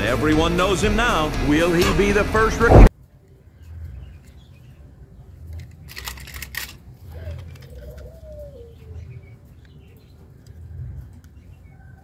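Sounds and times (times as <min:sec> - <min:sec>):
low rumble: 0:00.0 - 0:02.9
plastic toy cars clicking: 0:05.5 - 0:08.2.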